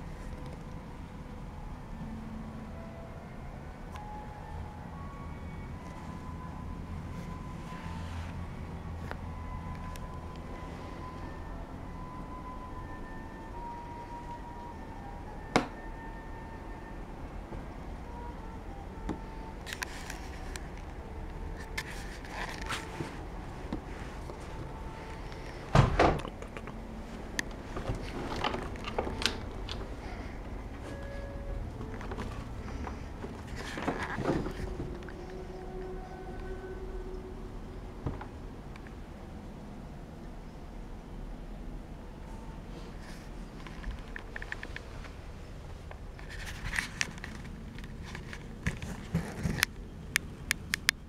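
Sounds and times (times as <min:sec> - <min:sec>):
steady low hum: 0:00.0 - 0:51.0
loud thump: 0:25.7 - 0:26.2.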